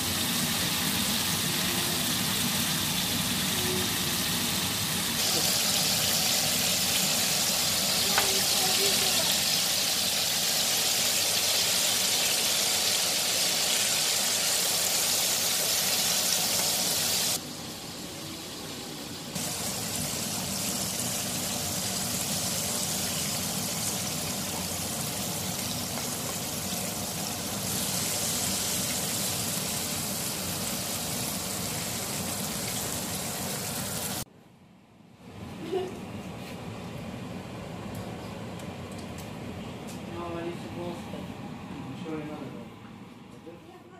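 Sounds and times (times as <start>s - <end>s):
chicken deep-frying in oil: 0.0s - 34.3s.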